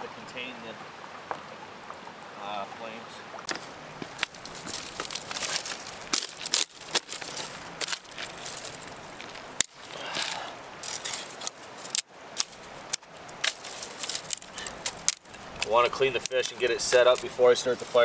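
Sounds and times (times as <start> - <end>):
rustling: 3.4 - 18.0
sticks snapping: 3.5 - 17.4.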